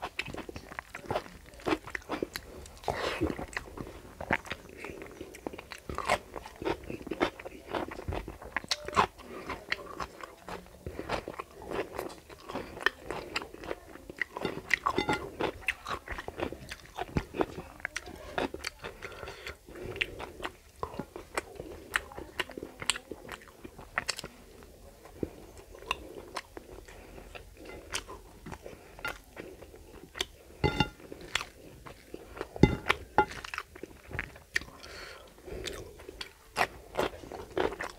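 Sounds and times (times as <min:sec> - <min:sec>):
person chewing and crunching: 0:00.0 - 0:24.4, 0:25.0 - 0:37.9.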